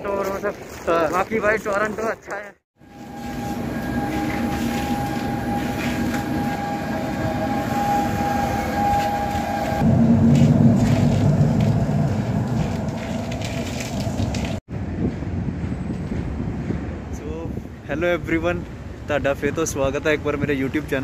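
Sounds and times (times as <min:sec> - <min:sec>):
steady high tone: 0:02.8 - 0:13.4
train rail noise: 0:02.8 - 0:17.2
low train rumble: 0:02.8 - 0:20.3.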